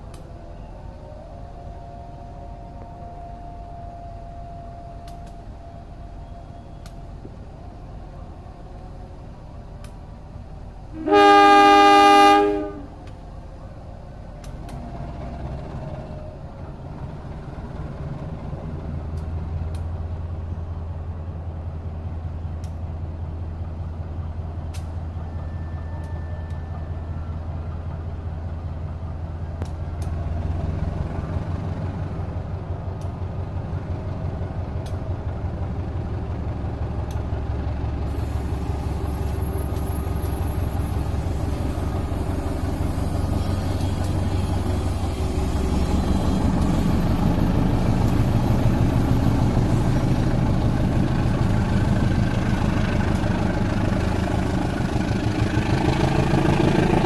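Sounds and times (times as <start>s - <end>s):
locomotive engine rumbling: 0.0s - 57.0s
locomotive horn blast: 10.9s - 13.1s.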